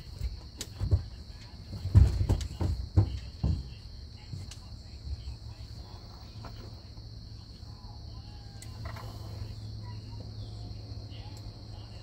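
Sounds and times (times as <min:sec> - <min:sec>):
insects chorus: 0:00.0 - 0:12.0
low steady hum: 0:00.0 - 0:12.0.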